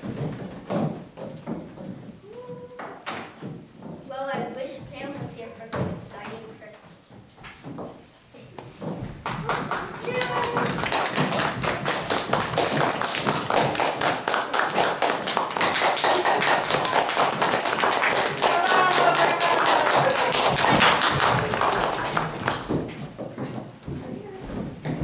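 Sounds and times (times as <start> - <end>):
audience applauding: 9.2 - 23.0.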